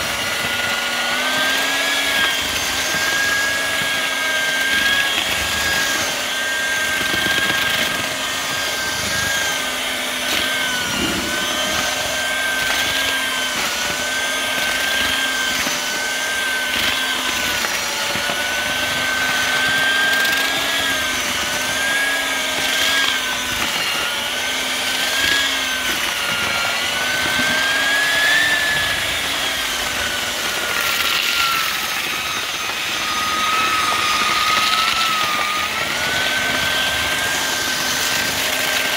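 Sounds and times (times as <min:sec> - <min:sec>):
electric mixer motor whine: 0:00.0 - 0:38.9.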